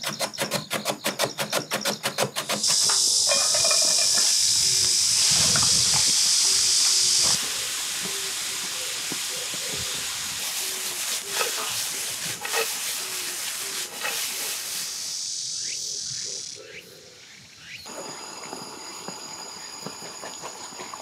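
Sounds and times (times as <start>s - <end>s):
carrot sizzling in frying pan: 2.6s - 15.7s.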